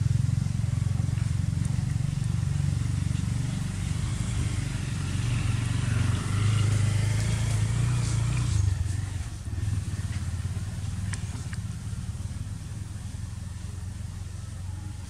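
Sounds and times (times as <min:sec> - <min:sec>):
vehicle engine humming: 0:00.0 - 0:15.0
faint clicks: 0:01.1 - 0:02.4, 0:09.9 - 0:12.4.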